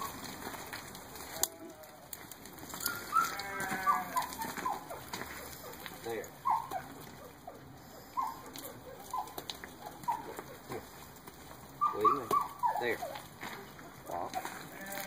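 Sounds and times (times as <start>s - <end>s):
dog whining and yelping: 2.8s - 10.8s, 11.8s - 13.3s.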